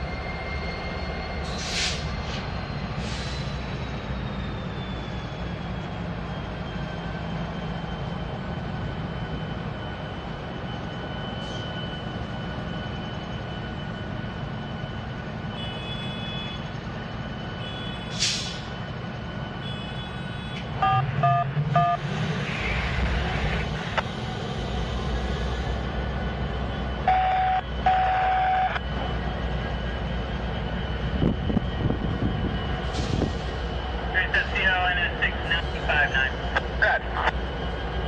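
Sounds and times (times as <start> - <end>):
diesel locomotive engine rumbling: 0.0 - 38.0
air hiss burst: 18.1 - 18.6.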